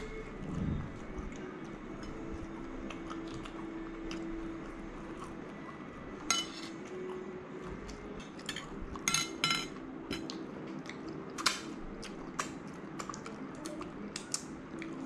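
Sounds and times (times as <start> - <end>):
eating sounds: 0.0 - 5.9, 10.2 - 15.0
cutlery clinking on plate: 6.3 - 6.7, 8.4 - 10.3.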